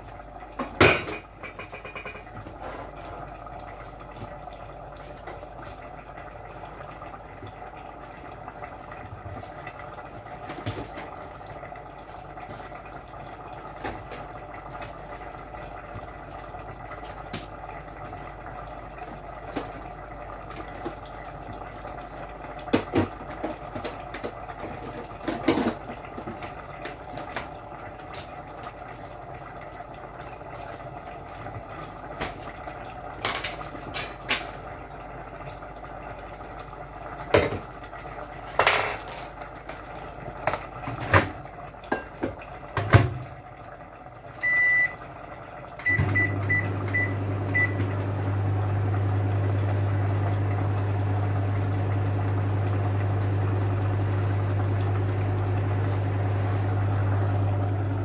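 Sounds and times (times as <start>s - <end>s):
microwave humming: 0.0s - 58.0s
microwave beeps: 44.4s - 45.1s, 45.8s - 49.7s, 57.1s - 58.0s.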